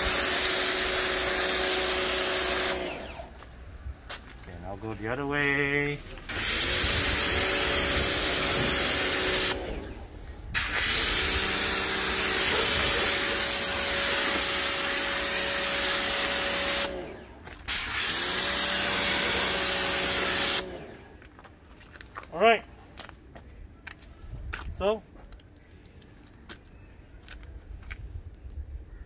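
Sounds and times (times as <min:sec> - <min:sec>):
pressure washer spraying water: 0:00.0 - 0:03.4, 0:06.0 - 0:21.1
pump motor humming: 0:00.0 - 0:03.4, 0:06.2 - 0:21.2.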